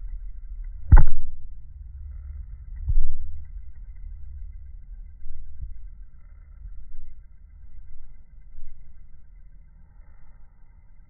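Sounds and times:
low rumble: 0.0 - 11.0
microphone handling noise: 0.9 - 1.4.

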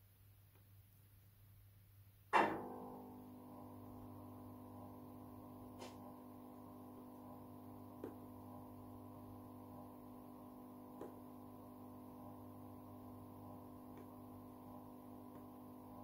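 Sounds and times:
steady electrical hum: 0.0 - 16.0
loud clunk: 2.3 - 3.1.

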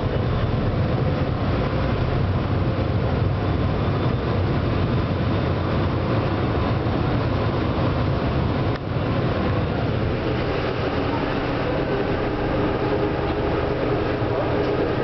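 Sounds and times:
boat engine rumbling: 0.0 - 15.0
water noise: 0.0 - 15.0
wind: 0.0 - 15.0.

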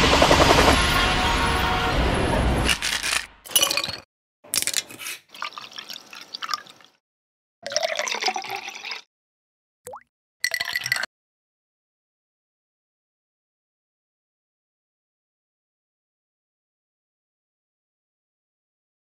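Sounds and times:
liquid strained into a glass: 4.8 - 7.0, 7.6 - 9.1, 9.9 - 11.1
liquid poured between metal tins: 4.9 - 7.0, 7.6 - 9.1.

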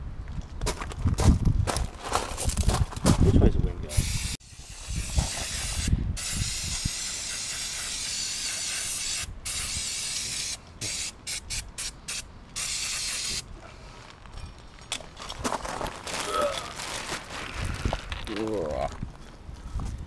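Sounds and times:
aerosol spray can hissing: 3.9 - 13.4.

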